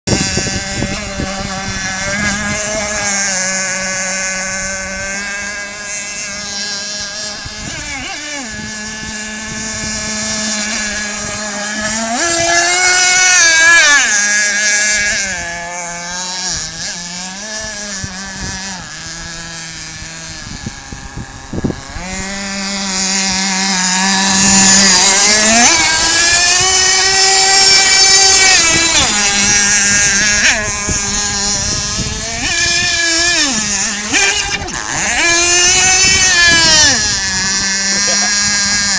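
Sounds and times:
model boat engine running: 0:00.1 - 0:38.9.

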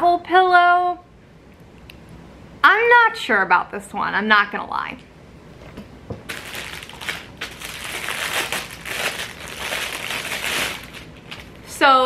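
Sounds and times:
packaging crinkling: 0:06.3 - 0:11.6.

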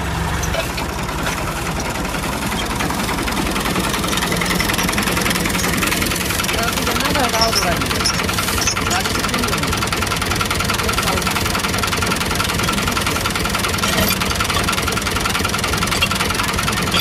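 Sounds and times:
tractor diesel engine idling: 0:00.0 - 0:17.0
metallic clinks of tow chain: 0:04.3 - 0:09.6.

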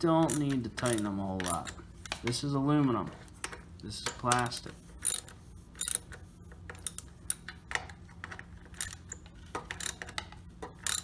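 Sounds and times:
socket wrench ratcheting: 0:00.2 - 0:01.8, 0:04.0 - 0:07.9, 0:08.6 - 0:11.0.

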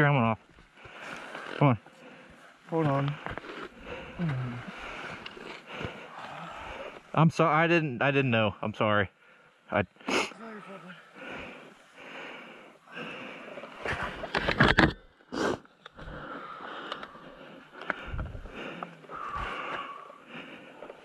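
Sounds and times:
person breathing heavily: 0:00.8 - 0:07.2, 0:09.2 - 0:14.3, 0:15.3 - 0:21.0
person sniffing: 0:10.0 - 0:11.0, 0:15.3 - 0:15.7.

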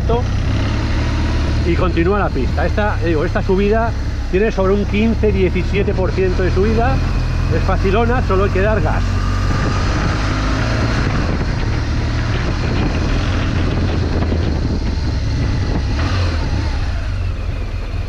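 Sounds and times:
motorcycle engine under throttle: 0:00.0 - 0:18.0
wind rushing: 0:08.1 - 0:17.3.

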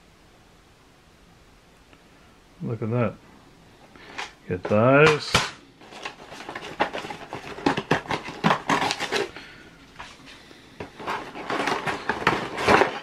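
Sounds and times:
cardboard and paper rustling: 0:04.0 - 0:13.0.

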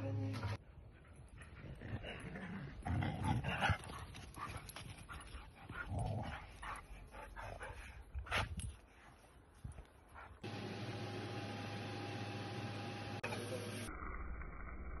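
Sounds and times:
dogs vocalizing while playing: 0:01.1 - 0:08.6.

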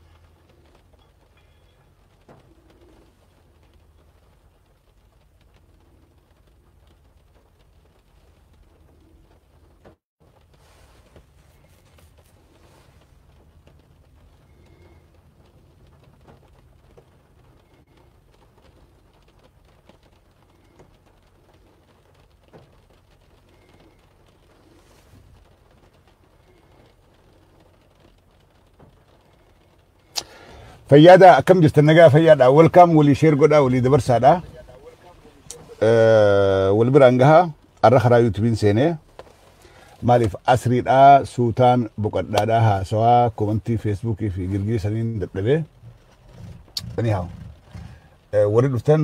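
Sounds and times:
faint clicks: 0:00.0 - 0:31.4, 0:45.6 - 0:48.3
low rumble inside car: 0:00.0 - 0:49.0.

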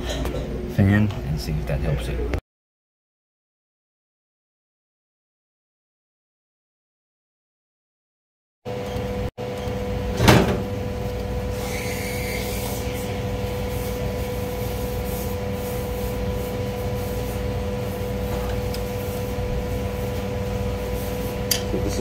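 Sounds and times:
steady machine hum: 0:08.7 - 0:22.0.

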